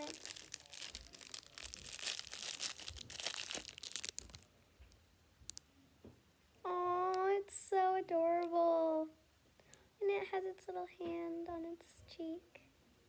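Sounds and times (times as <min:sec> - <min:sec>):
plastic wrapper crinkling: 0:00.0 - 0:04.5.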